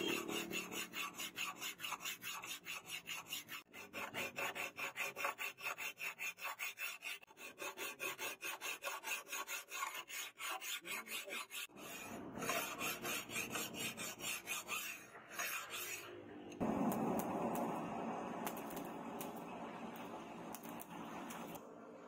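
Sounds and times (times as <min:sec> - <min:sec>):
file scraping steel blade: 0:00.0 - 0:16.2.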